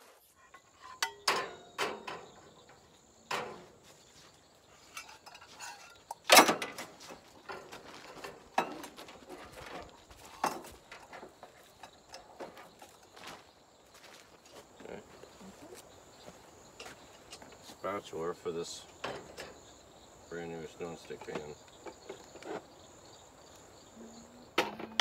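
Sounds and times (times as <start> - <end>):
pans clattering on camp stove: 0.0 - 4.0, 4.7 - 13.3, 18.9 - 19.7, 24.6 - 25.0.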